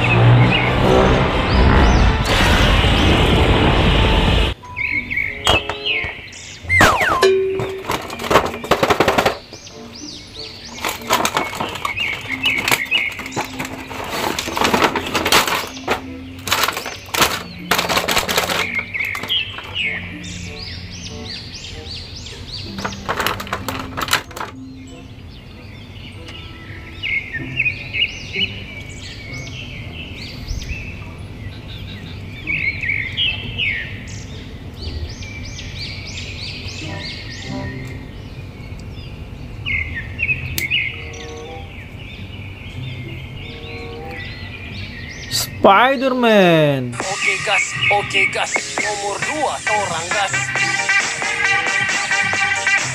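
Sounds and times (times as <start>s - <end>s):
birds chirping: 0.0s - 2.2s, 2.9s - 52.9s
background music: 0.0s - 30.7s, 36.4s - 38.5s, 40.5s - 52.9s
plastic tray sliding: 10.7s - 19.4s
packaging crackling: 10.7s - 19.8s, 22.7s - 24.6s.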